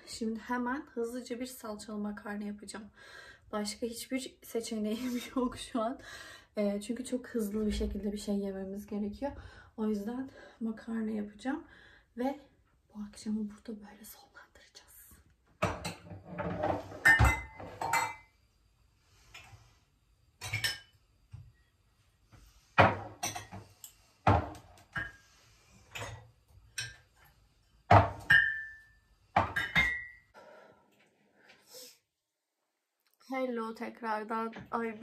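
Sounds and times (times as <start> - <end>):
pots and utensils clattering: 15.6 - 18.3, 20.4 - 21.0, 22.8 - 27.3, 27.9 - 30.3.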